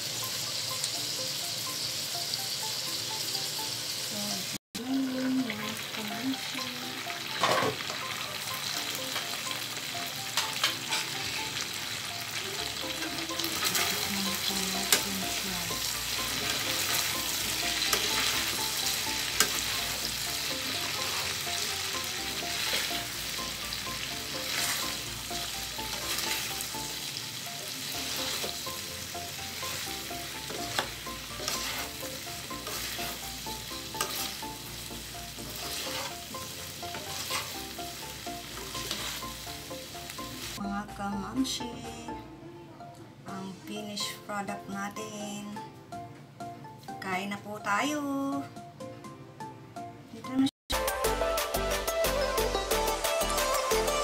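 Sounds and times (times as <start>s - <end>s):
meat and vegetables sizzling in a wok: 0.0s - 40.6s
wooden spatula stirring and scraping: 24.4s - 25.0s, 30.5s - 33.2s, 35.4s - 37.6s, 38.5s - 39.4s.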